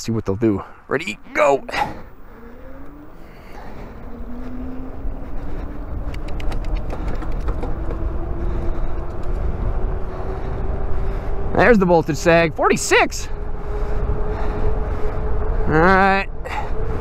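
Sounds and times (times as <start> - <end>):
wind rumble on microphone: 1.7 - 17.0
electric motor whine: 1.9 - 6.0
light ticks: 6.1 - 7.5.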